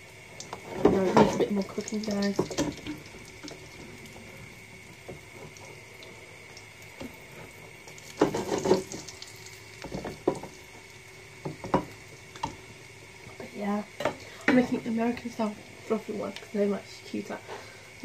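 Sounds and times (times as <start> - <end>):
utensils clattering on frying pan: 8.2 - 9.0.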